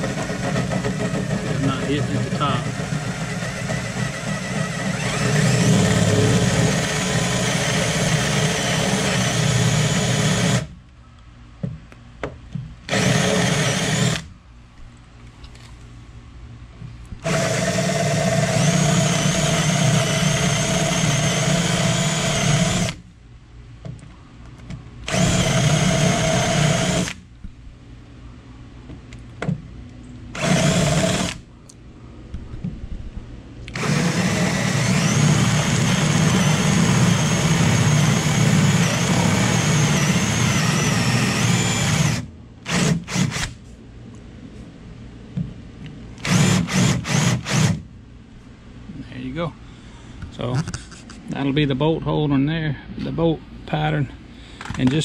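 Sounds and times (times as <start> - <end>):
cordless drill boring into plywood: 0.0 - 10.7, 12.9 - 14.3, 17.2 - 23.0, 25.1 - 27.2, 30.4 - 31.4, 33.7 - 43.6, 46.2 - 47.8.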